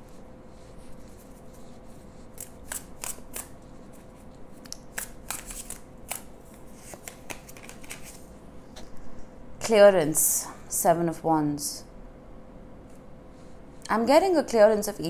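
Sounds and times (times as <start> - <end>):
faint steady hum: 0.0 - 15.0
cards shuffling snaps and clicks: 2.4 - 3.5, 4.6 - 8.3.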